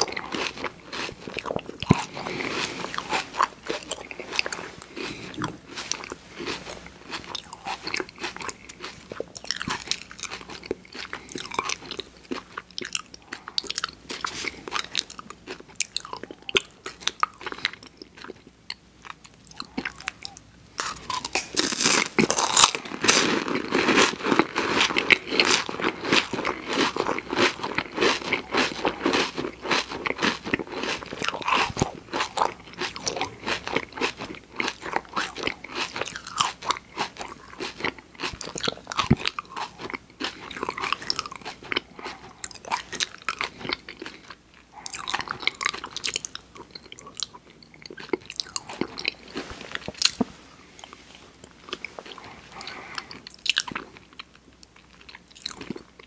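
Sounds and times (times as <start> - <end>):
wet chewing mouth sounds: 0.0 - 22.8, 23.5 - 50.2, 50.8 - 56.0
crunching wafer cone: 19.5 - 50.2.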